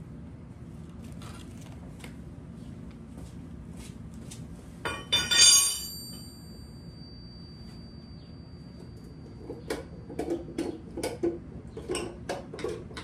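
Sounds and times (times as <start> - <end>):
metal parts clinking: 4.9 - 6.3
loud metallic clang: 4.9 - 6.4.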